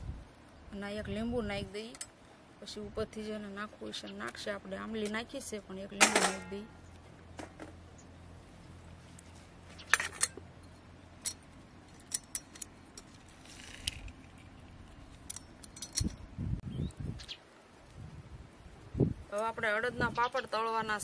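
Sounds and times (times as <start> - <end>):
metal utensils clinking: 6.0 - 6.6, 9.9 - 10.4.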